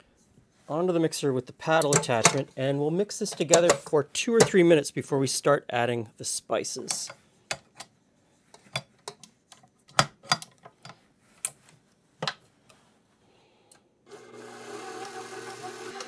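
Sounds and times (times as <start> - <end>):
metal clicks and knocks: 1.8 - 2.5, 8.5 - 11.6
mixer motor humming: 14.1 - 16.0.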